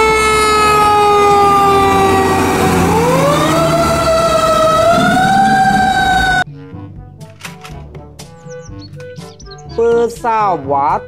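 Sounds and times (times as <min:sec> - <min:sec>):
low engine rumble: 0:00.0 - 0:06.4
fire truck siren wailing: 0:00.0 - 0:06.5.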